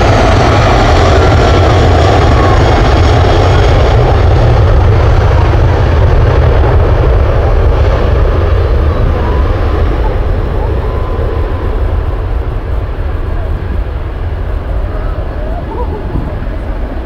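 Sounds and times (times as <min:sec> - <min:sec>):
jet engine rumble: 0:00.0 - 0:17.0.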